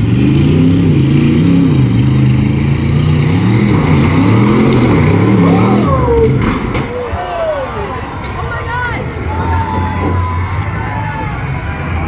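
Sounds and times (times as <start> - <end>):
truck engine revving hard: 0.0 - 6.8.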